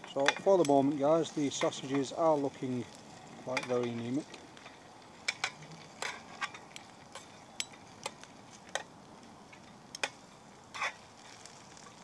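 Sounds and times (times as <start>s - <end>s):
sausages sizzling in a pan: 0.0s - 12.0s.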